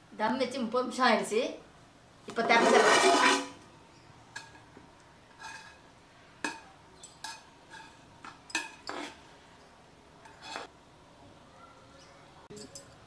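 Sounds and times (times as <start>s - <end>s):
metal ladle clinking on steel pot: 6.4s - 9.1s.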